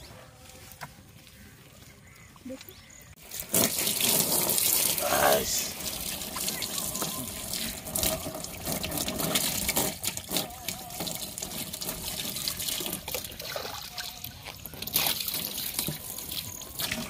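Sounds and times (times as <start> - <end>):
water pouring and splashing: 3.2 - 17.0
water trickling into a plastic tub: 3.2 - 17.0.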